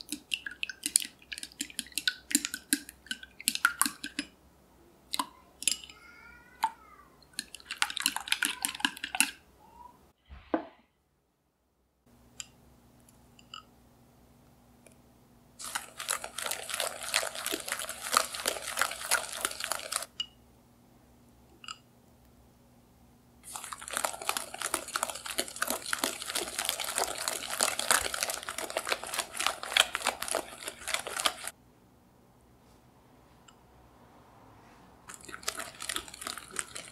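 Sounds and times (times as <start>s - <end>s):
whisk clattering in glass bowl: 7.4s - 9.4s, 35.2s - 36.9s.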